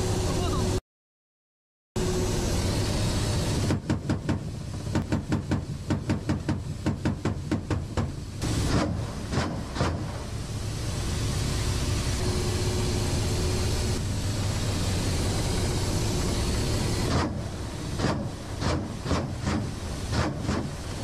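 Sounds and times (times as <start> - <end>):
helicopter rotor and turbine noise: 0.0 - 0.8, 2.0 - 21.0.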